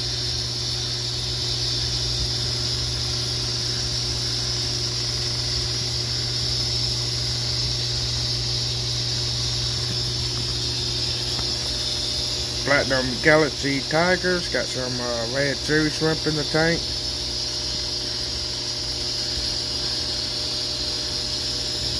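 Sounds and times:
aquarium air pump humming: 0.0s - 21.9s.

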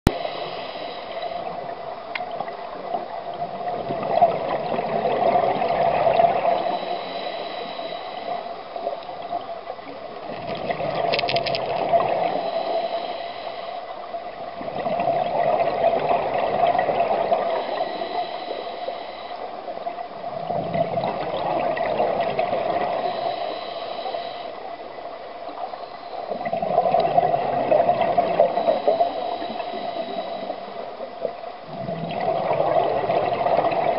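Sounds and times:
diver inhaling through regulator: 0.1s - 1.6s, 6.6s - 8.8s, 12.2s - 14.0s, 17.5s - 19.6s, 22.9s - 24.7s, 28.4s - 31.0s
exhaled bubbles gurgling: 1.2s - 13.4s, 14.0s - 33.9s.

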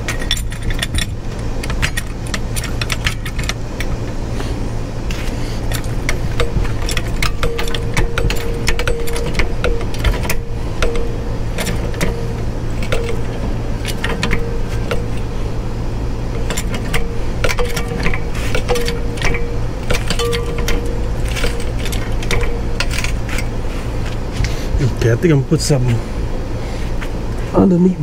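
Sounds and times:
low hum: 0.0s - 28.0s
floor jack pumping clicks and rattles: 5.1s - 15.4s.

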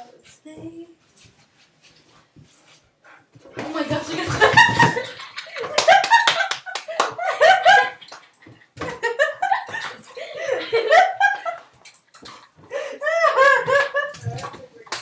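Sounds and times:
girl laughing and giggling: 3.7s - 8.2s, 8.8s - 11.7s, 12.7s - 14.8s.

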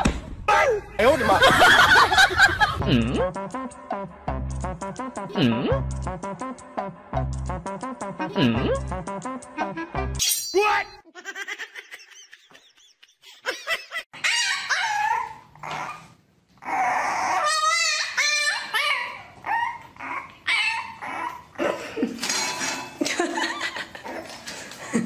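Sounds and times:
dog barking and whining: 14.2s - 21.5s.

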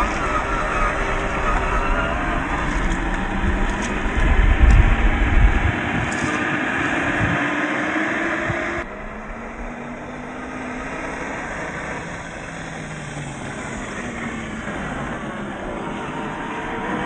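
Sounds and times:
tyres on gravel: 0.0s - 9.0s
electric motor and gears whining: 0.0s - 17.0s.

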